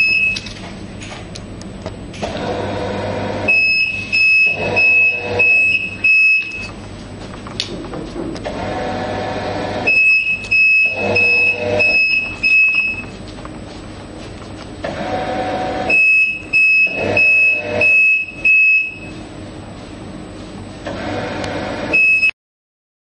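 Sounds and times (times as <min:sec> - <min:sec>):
quick high alarm beeps: 0:03.5 - 0:06.7, 0:09.9 - 0:13.1.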